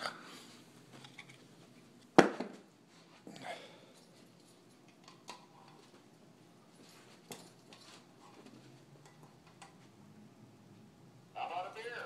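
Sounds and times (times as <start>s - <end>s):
soft rustles: 2.8s - 3.3s, 6.7s - 8.8s.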